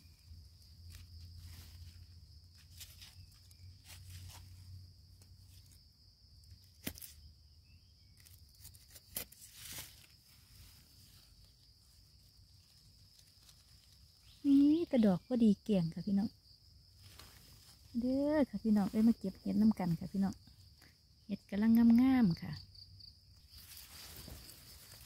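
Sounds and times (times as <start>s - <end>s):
rustling in dry leaves: 0.0s - 7.3s, 8.1s - 14.9s, 16.8s - 20.0s, 23.4s - 25.0s.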